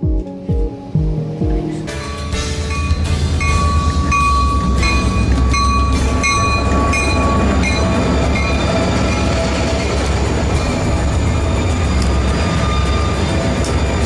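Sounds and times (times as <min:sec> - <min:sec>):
diesel locomotives rumbling past: 0:01.7 - 0:14.0
ringing tone: 0:02.0 - 0:09.8.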